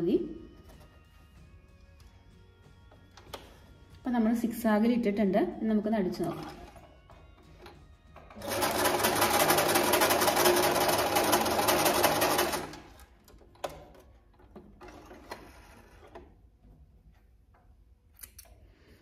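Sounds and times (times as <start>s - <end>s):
sewing machine stitching: 6.2s - 6.9s, 8.2s - 13.9s, 14.8s - 16.3s.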